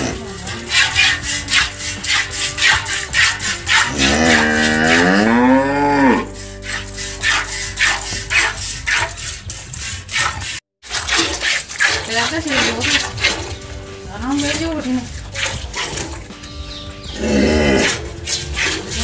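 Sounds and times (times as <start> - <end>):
cow mooing: 0.0 - 8.6, 12.6 - 19.0
milk squirting into a bucket: 6.5 - 13.8, 14.4 - 16.4.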